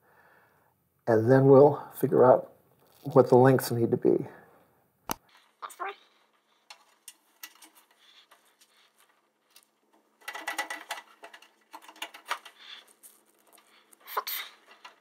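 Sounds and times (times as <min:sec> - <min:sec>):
cables rustling and clicking: 0:02.7 - 0:03.4, 0:05.1 - 0:15.0
cables scraping through metal panel: 0:05.3 - 0:15.0.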